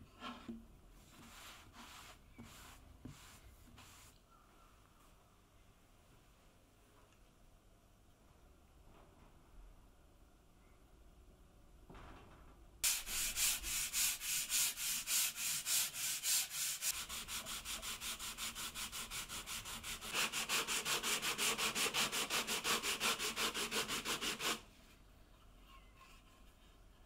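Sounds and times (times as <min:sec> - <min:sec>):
sandpaper rasping on wood: 0:12.8 - 0:24.6.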